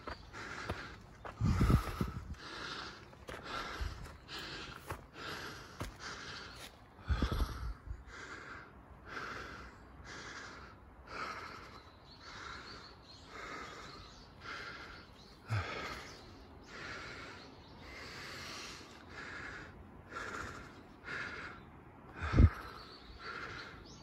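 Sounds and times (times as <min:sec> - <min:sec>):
heavy breathing: 0:00.0 - 0:24.0.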